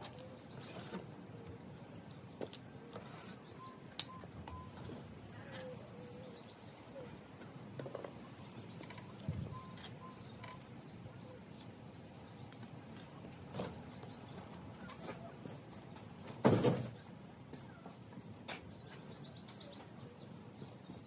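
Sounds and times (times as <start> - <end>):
faint bird chirps: 2.9 - 11.8.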